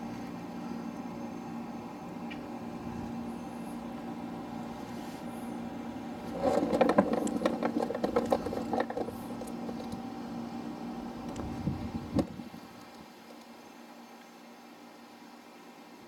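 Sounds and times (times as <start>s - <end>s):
steady low hum: 0.0s - 16.0s
rustling and clicking handling noise: 6.2s - 10.1s.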